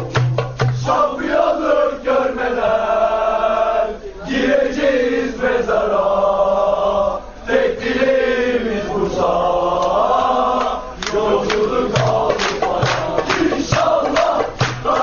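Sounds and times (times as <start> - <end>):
rhythmic beats: 0.0 - 1.0, 10.6 - 15.0
crowd chanting in unison: 0.8 - 15.0.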